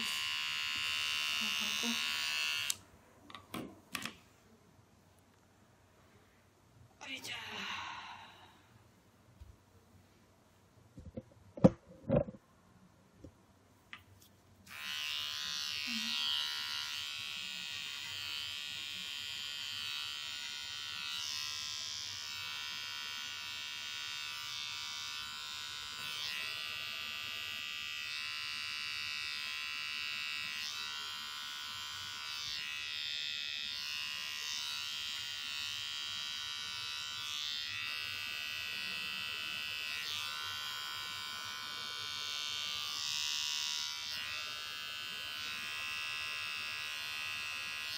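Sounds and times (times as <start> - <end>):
electric hair trimmer buzzing: 0.0 - 2.8, 14.7 - 47.9.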